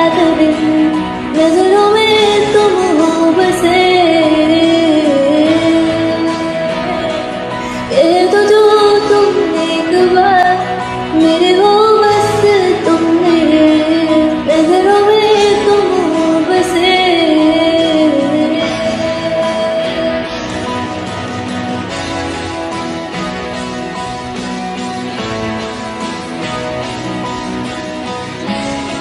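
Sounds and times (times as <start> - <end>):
woman singing slow melody: 0.0 - 20.7
pop-rock backing music: 0.0 - 29.0.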